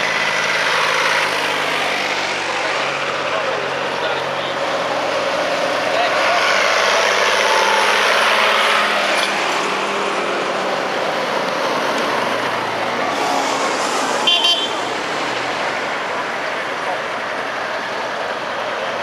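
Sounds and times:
old engines driving past: 0.0 - 19.0
short high horn toot: 13.1 - 14.9.

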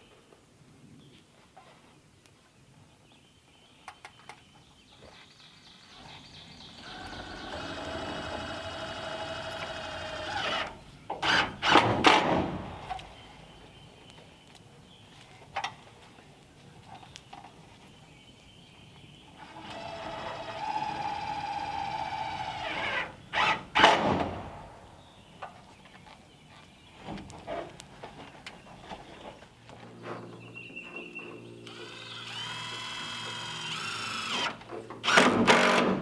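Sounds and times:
power drill whining: 6.8 - 11.8, 19.4 - 23.8, 31.6 - 36.0.

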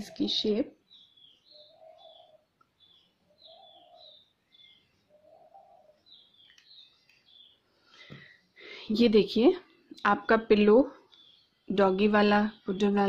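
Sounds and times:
small birds chirping: 0.0 - 13.0
dove cooing: 1.6 - 2.5, 3.3 - 4.2, 5.1 - 6.2.

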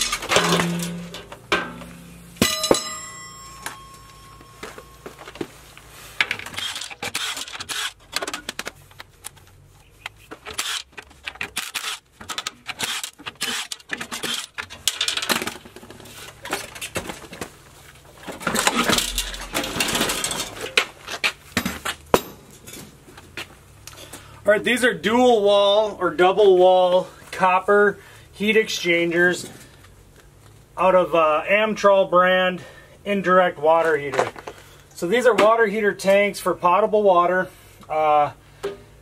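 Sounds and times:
ringing metal clang: 0.0 - 5.2
metal clanking and clinking: 0.0 - 5.4, 10.4 - 17.3, 18.3 - 20.9.

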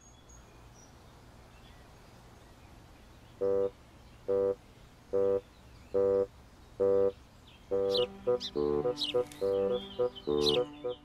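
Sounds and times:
short electronic beeps: 3.4 - 3.7, 4.3 - 4.6, 6.0 - 8.1.

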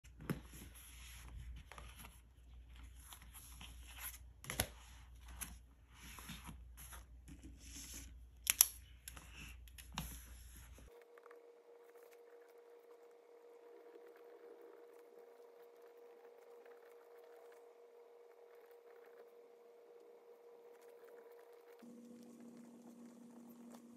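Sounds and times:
paper pages rustling: 0.1 - 10.9
faint steady hum: 0.2 - 23.9.

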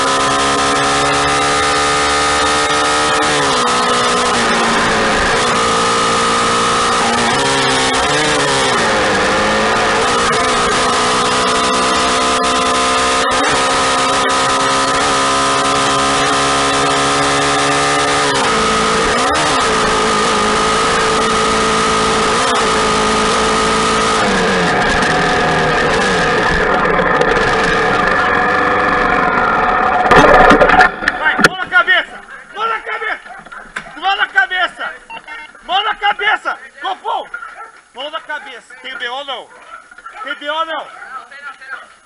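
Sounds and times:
motorcycle engine running: 0.0 - 31.6.

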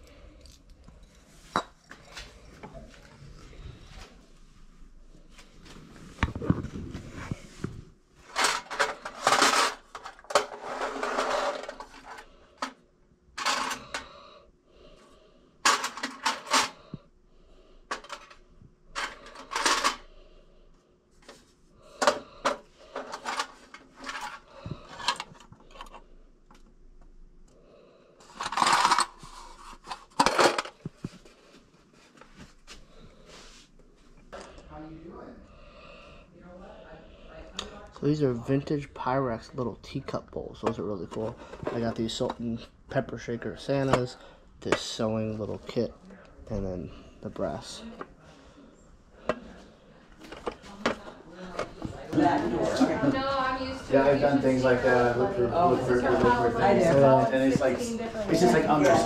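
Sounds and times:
household items clattering: 6.0 - 12.8, 13.4 - 14.1, 15.6 - 16.9, 17.9 - 20.1, 21.9 - 26.1, 28.2 - 31.4, 50.2 - 55.2.

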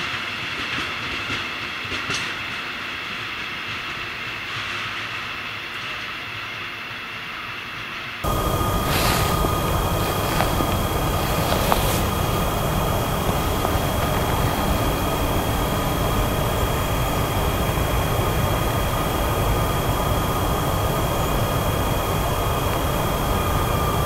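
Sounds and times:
high whining tones: 8.2 - 24.0
locomotive rumbling hum: 8.2 - 24.0.

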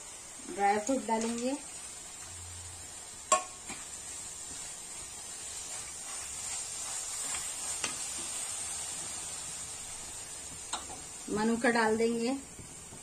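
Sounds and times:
faint steady hiss: 0.0 - 13.0
wooden spatula stirring in pan: 3.3 - 11.5.

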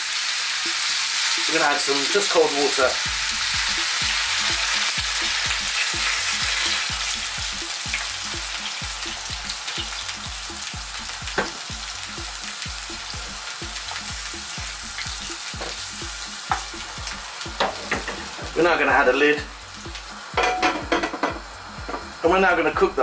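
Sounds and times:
water sizzling in hot oil: 0.0 - 23.0
wooden spatula knocking on pan: 11.3 - 11.6, 15.3 - 18.6, 19.9 - 22.2.

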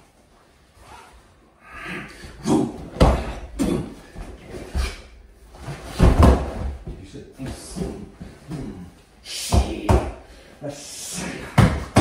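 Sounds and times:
bodies thumping on padded mat: 2.9 - 8.6
feet scuffling on mat: 2.9 - 8.9.

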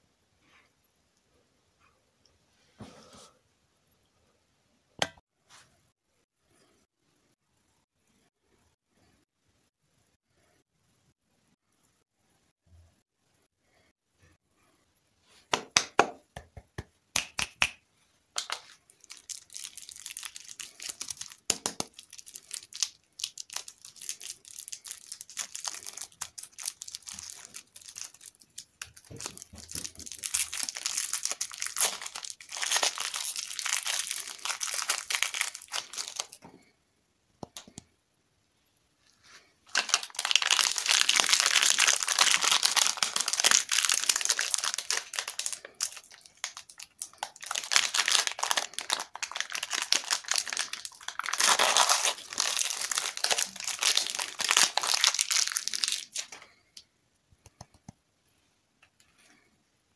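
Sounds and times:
plastic wrappers crinkling: 18.4 - 36.4, 39.6 - 56.6.

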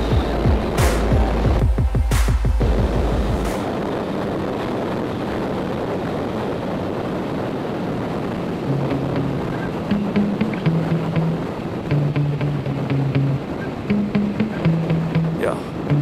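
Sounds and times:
bass-heavy background music: 0.0 - 3.6, 10.0 - 16.0
wind noise over microphone: 0.0 - 16.0.

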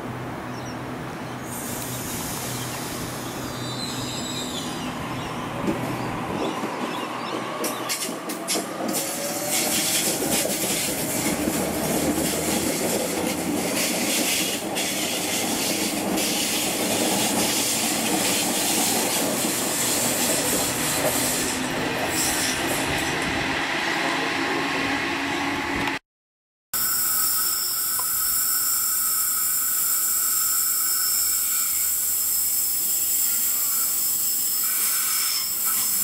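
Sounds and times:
train wheels rumbling on rails: 1.5 - 26.0.

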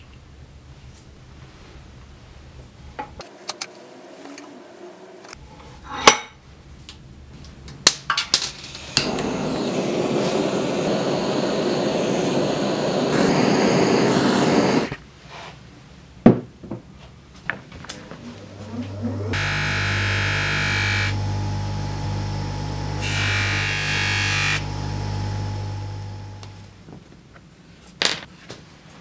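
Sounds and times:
torch flame hissing: 8.7 - 15.0, 21.1 - 23.2, 24.3 - 26.8.

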